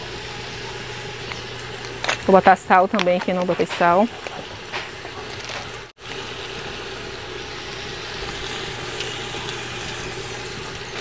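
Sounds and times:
constant low hum: 0.0 - 11.0
meat sizzling in a pot: 3.8 - 11.0.

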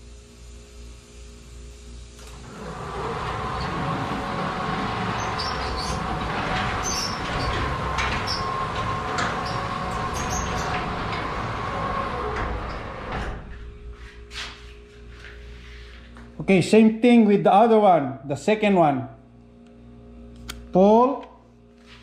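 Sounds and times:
garage door opener motor: 2.0 - 14.3
garage door rattling: 2.2 - 13.9.

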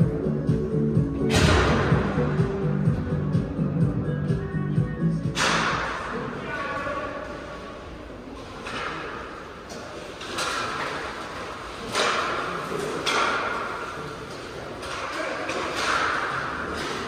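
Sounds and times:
hockey sticks and puck knocking: 8.6 - 17.0.

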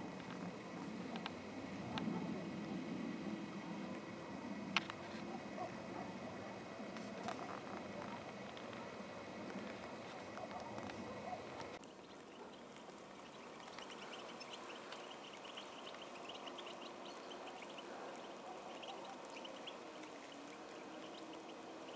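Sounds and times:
goldfinches twittering: 10.2 - 21.9.

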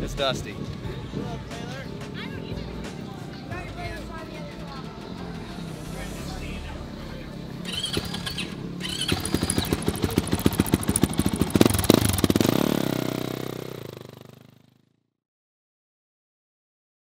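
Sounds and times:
dirt bike engine running: 7.6 - 15.0.

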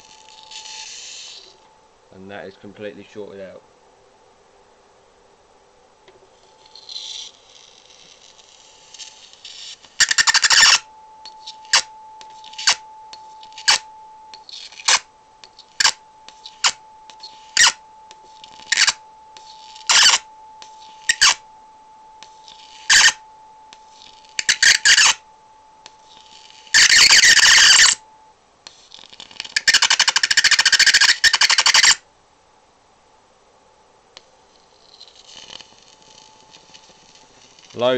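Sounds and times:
electric arc crackling: 0.0 - 1.6, 35.0 - 37.9
thin steady whine: 0.0 - 37.9.

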